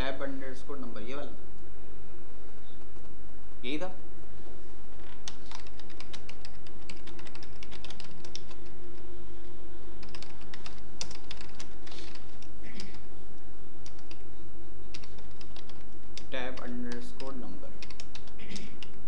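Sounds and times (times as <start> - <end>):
low hum: 0.0 - 19.0
keyboard typing: 2.5 - 3.2, 4.9 - 9.1, 10.0 - 13.1, 13.8 - 14.3, 14.9 - 19.0.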